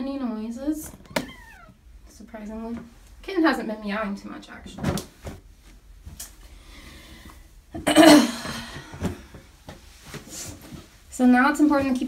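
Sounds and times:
rustling and handling noise: 4.4s - 7.6s, 8.7s - 12.0s.

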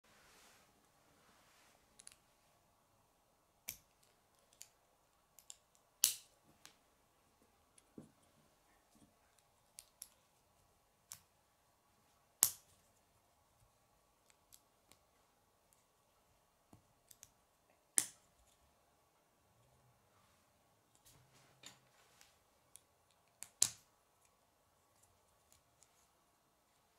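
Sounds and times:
plastic pieces snapping together: 5.4s - 6.8s, 12.4s - 12.7s.

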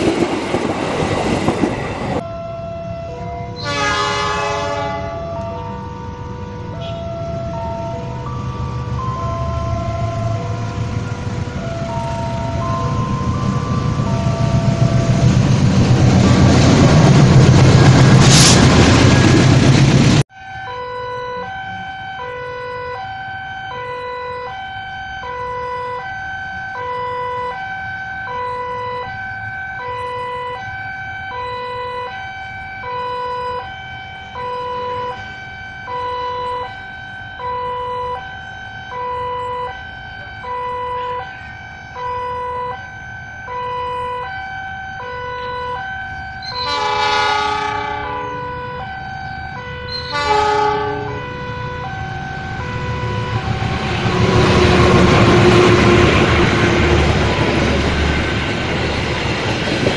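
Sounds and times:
passenger train rumbling past: 0.0s - 20.3s, 21.0s - 59.9s
two-tone electronic warning alarm: 2.1s - 16.8s, 20.3s - 58.6s
train squeal: 46.3s - 46.9s, 49.8s - 50.6s.

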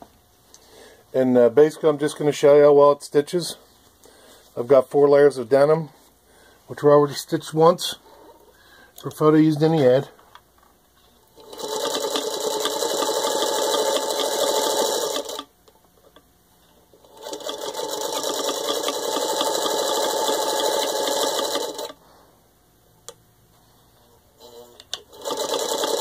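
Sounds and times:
sewing machine stitching: 11.4s - 15.5s, 17.0s - 22.0s, 24.4s - 26.0s.

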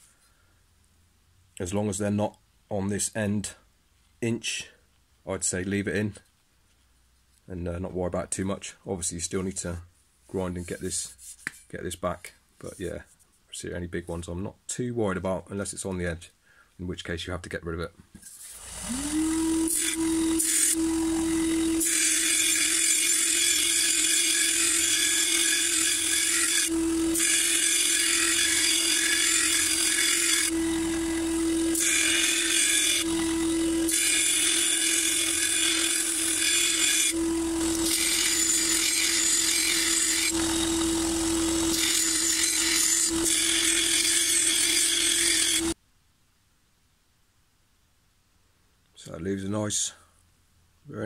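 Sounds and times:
sander motor hum: 18.6s - 45.8s.

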